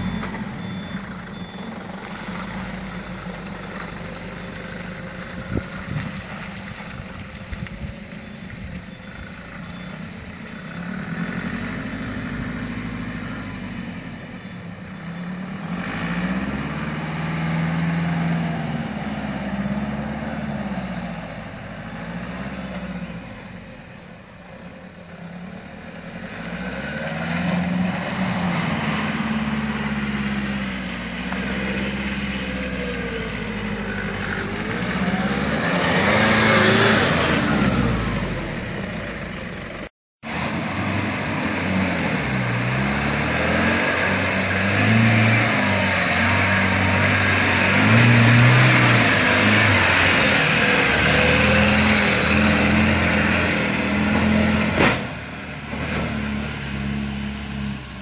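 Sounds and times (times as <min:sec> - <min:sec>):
off-road vehicle engine revving: 0:10.3 - 0:14.3, 0:15.0 - 0:23.2, 0:25.2 - 0:58.0.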